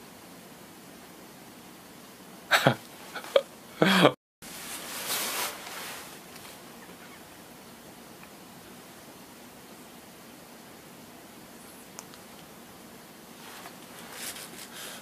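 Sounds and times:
man coughing: 2.5s - 4.2s
rustling: 4.4s - 7.2s, 13.3s - 15.0s
small clicks: 11.9s - 12.5s.

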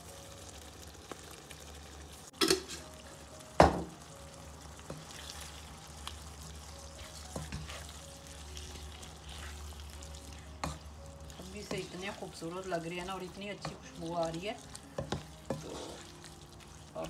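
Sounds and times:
potatoes frying in a pan: 0.0s - 17.0s
wooden spatula scraping a pan: 6.8s - 8.0s, 8.7s - 16.4s.

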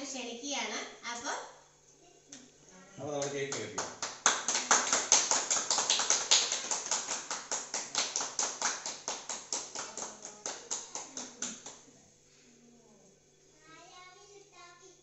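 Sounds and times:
hands clapping: 3.2s - 11.9s.

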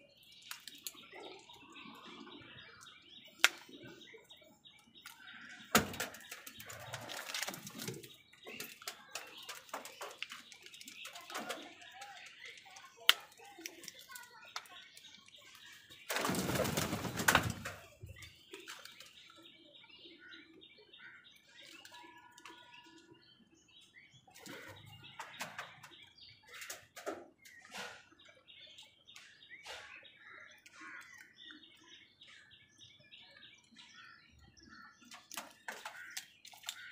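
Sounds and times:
beaks pecking plastic bowl: 0.1s - 19.5s, 21.4s - 23.2s, 24.3s - 27.8s, 34.6s - 36.9s
flapping wings: 16.1s - 17.8s.

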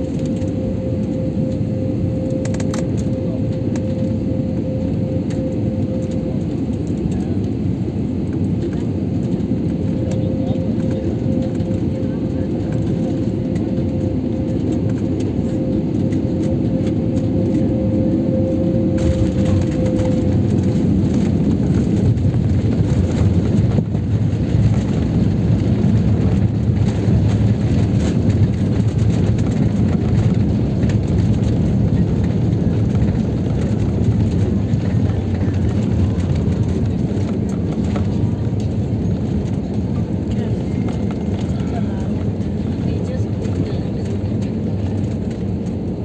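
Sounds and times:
steady tone: 0.0s - 6.9s, 13.0s - 22.0s
jet engines and wheels rumbling: 0.0s - 46.0s.

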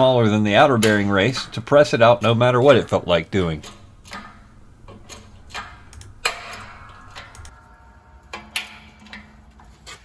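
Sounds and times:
hydraulic press metallic clicks: 3.6s - 7.5s.

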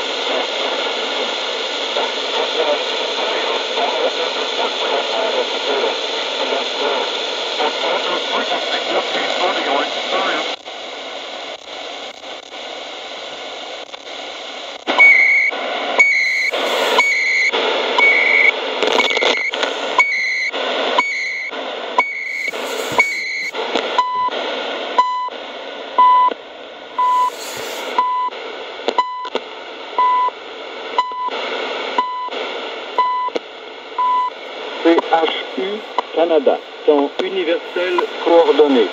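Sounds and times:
radio static hiss: 0.0s - 38.9s
short radio beeps: 15.0s - 24.3s, 27.0s - 28.3s.

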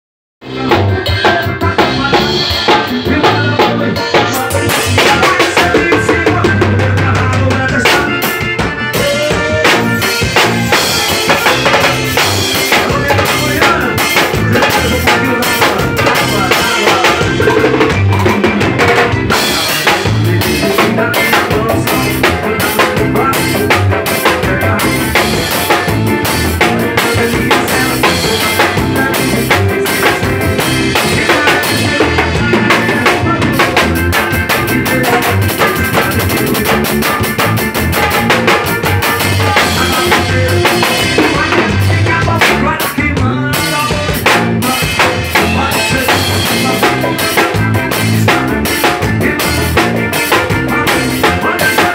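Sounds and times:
band instruments: 0.4s - 51.9s
drum kit beat: 0.4s - 51.9s.

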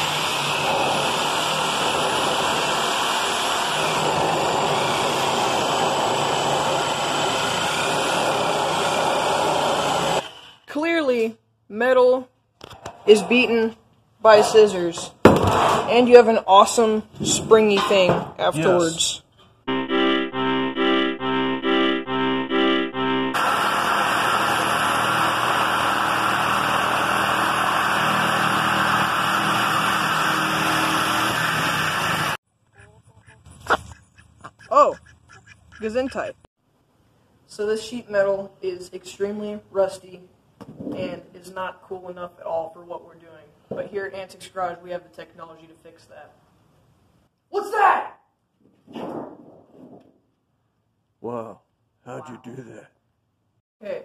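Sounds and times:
electric metal shear cutting: 0.0s - 10.3s, 23.3s - 32.4s.

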